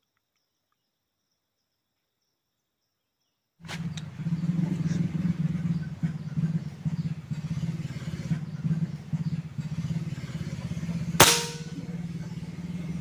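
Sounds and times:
small engine running: 0:03.6 - 0:13.0
air rifle shot: 0:11.2 - 0:11.8.

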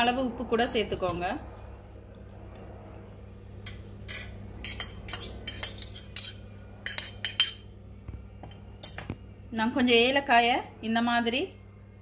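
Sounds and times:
spoon clinking against metal cup: 0:03.6 - 0:07.7.

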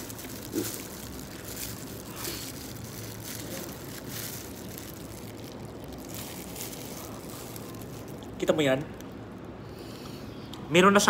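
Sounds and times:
fish flesh squishing: 0:00.0 - 0:09.5
plastic glove crinkling: 0:00.0 - 0:09.6
low background hum: 0:00.0 - 0:11.0.

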